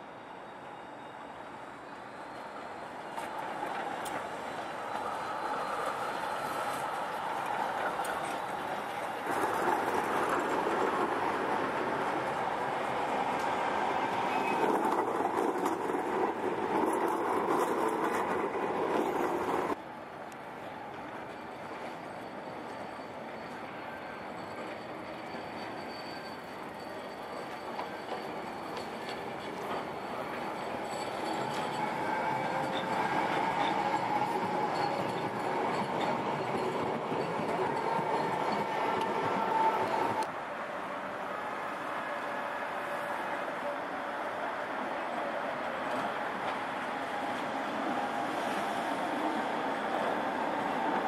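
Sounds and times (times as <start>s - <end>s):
street noise: 0.0s - 51.0s
trams rolling past: 0.0s - 51.0s.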